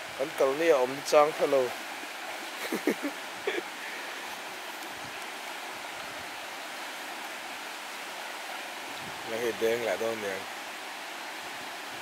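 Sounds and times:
river rapids rushing: 0:00.0 - 0:12.0
person's voice: 0:09.3 - 0:10.4.

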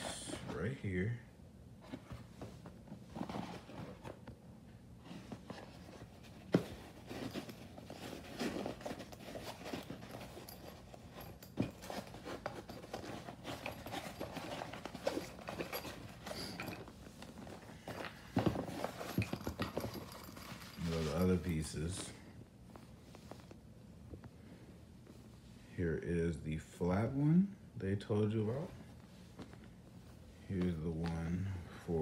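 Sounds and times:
fabric pouch rustling: 0:01.8 - 0:04.3, 0:05.0 - 0:21.6.

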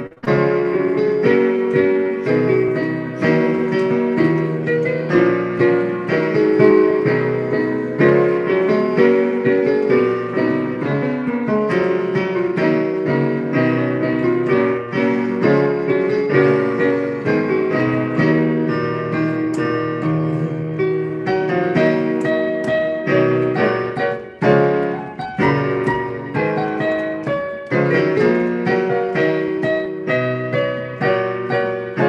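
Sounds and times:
piano playing hymn chords: 0:00.0 - 0:32.0.

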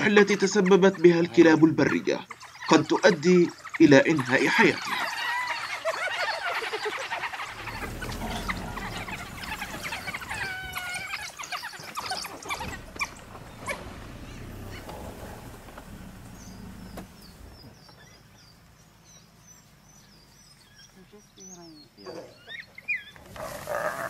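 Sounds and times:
animal squeals and calls: 0:00.0 - 0:17.0.

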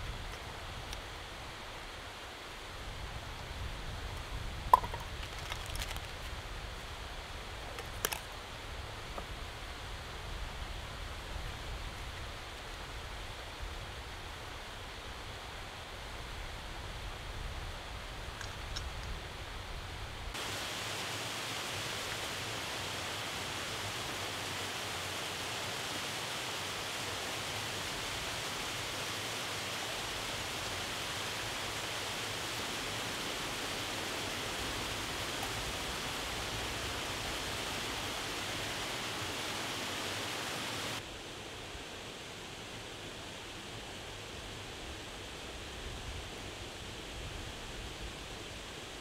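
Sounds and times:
waterfall rushing water: 0:20.3 - 0:49.0.

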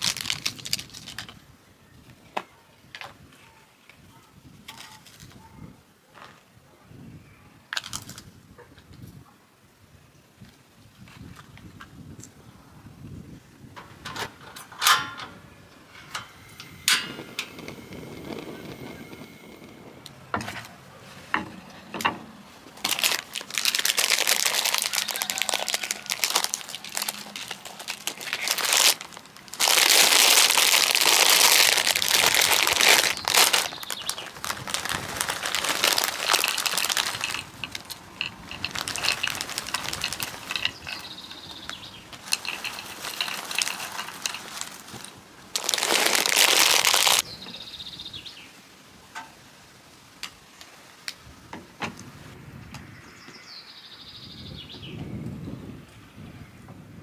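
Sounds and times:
plastic snack bag crinkling: 0:00.0 - 0:01.4, 0:22.8 - 0:47.2
nuts rattling into a tray: 0:22.8 - 0:47.2.

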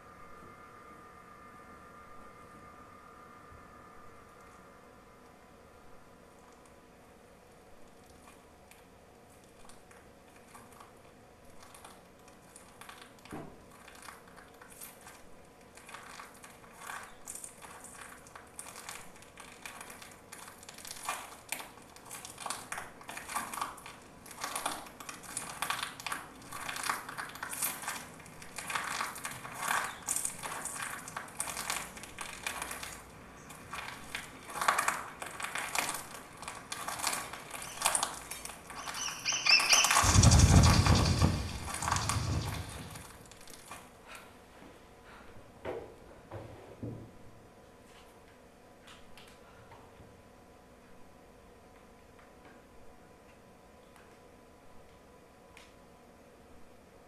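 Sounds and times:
crunching and crackling: 0:07.9 - 0:43.8.

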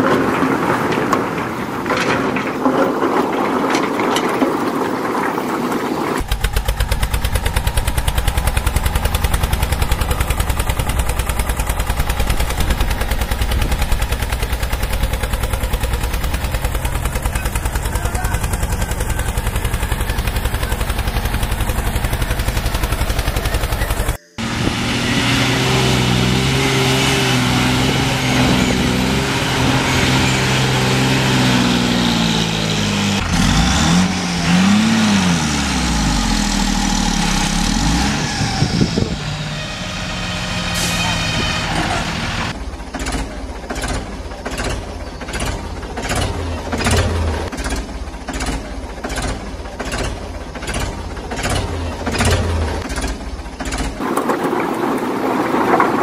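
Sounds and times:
engine rattling: 0:00.0 - 0:56.0
engine note rising and falling: 0:06.2 - 0:42.6.

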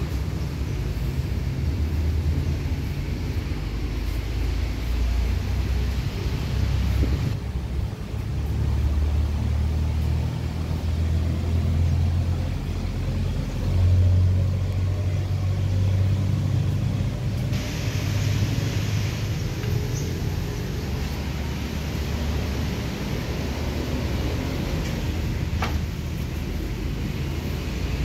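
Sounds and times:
steady hiss: 0:00.0 - 0:11.4, 0:16.2 - 0:28.0
wind buffeting microphone: 0:05.9 - 0:08.0.

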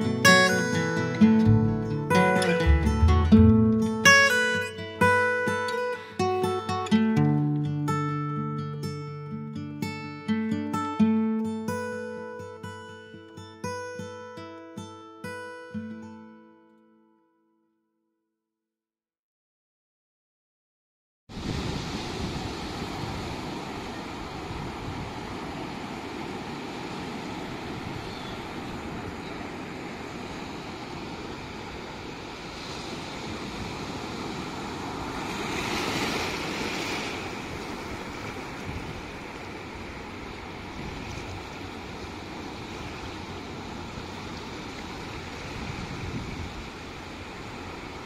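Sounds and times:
surf washing over beach: 0:21.3 - 0:48.0.

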